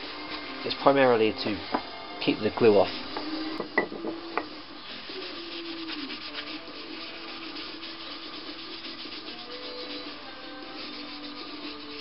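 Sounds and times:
paper towel rubbing on wood: 0:02.6 - 0:03.5, 0:04.8 - 0:12.0.

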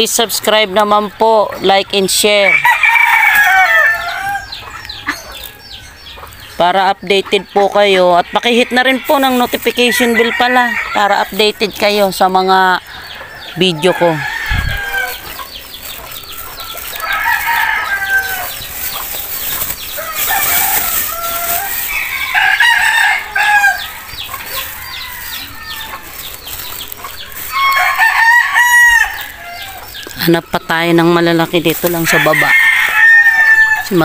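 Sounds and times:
chickens clucking and chirping: 0:00.0 - 0:34.0
roosters crowing: 0:02.0 - 0:06.4, 0:07.9 - 0:34.0.

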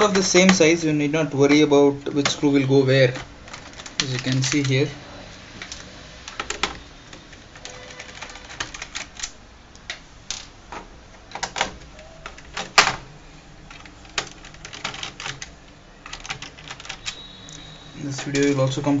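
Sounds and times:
hands tapping plastic laptop: 0:00.0 - 0:00.8.

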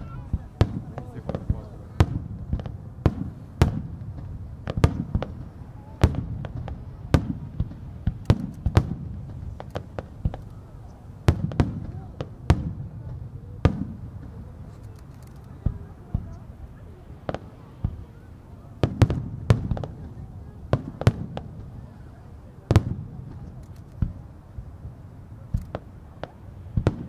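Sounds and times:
continuous low rumble: 0:00.0 - 0:27.0
firework shells bursting: 0:00.1 - 0:10.6.

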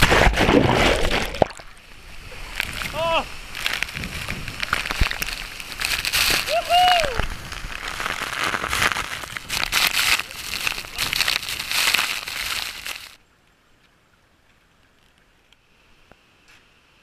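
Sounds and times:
waterfall spray pelting camera: 0:00.0 - 0:13.2
person shouting: 0:02.9 - 0:03.3, 0:06.4 - 0:07.3.

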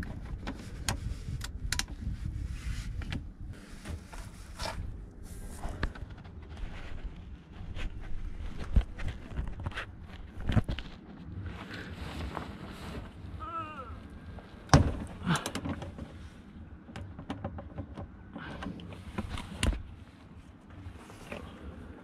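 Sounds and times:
sharp knocks and clunks: 0:14.7 - 0:16.1.

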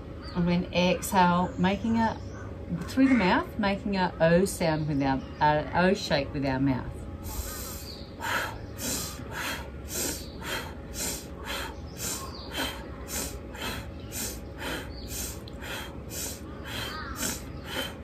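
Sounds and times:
woman forceful rapid breathing: 0:07.2 - 0:18.0.

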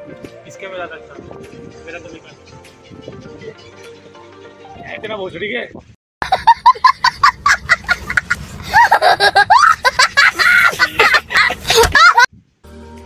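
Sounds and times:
child laughing hysterically: 0:06.2 - 0:12.3.

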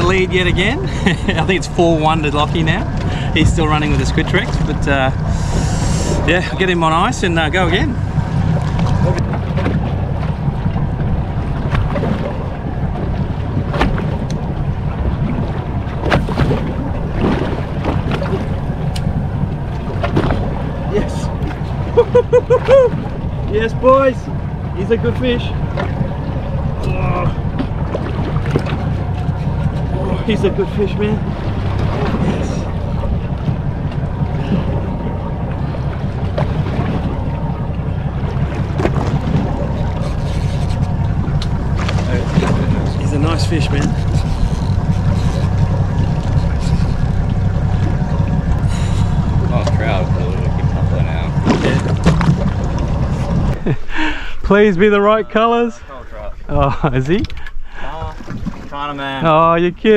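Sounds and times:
wind buffeting microphone: 0:00.0 - 0:54.8
water lapping against boat hull: 0:00.0 - 0:59.9.

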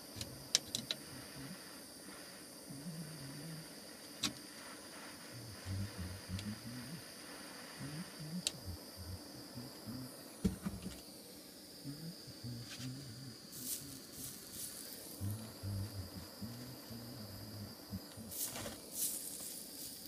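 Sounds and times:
torch flame hissing: 0:00.0 - 0:20.0
low rumbling: 0:07.8 - 0:10.4, 0:15.2 - 0:18.3.

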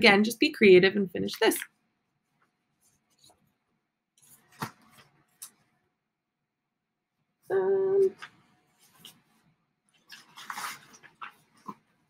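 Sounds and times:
paper rustling: 0:04.2 - 0:05.6, 0:08.2 - 0:12.0.

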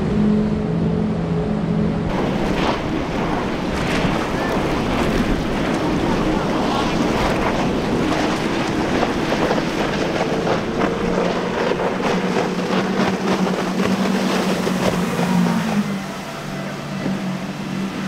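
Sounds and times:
powerboat engines at high speed: 0:00.0 - 0:18.0
wind noise on microphone: 0:02.0 - 0:15.9.

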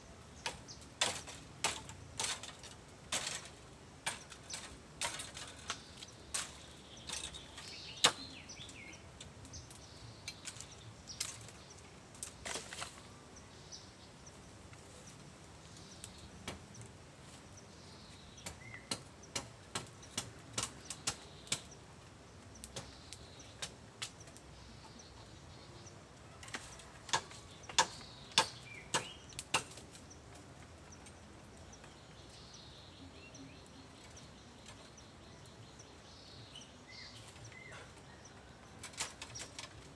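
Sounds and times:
dry leaves and twigs crackling: 0:00.0 - 0:39.9
faint bird chirps: 0:30.0 - 0:39.8.

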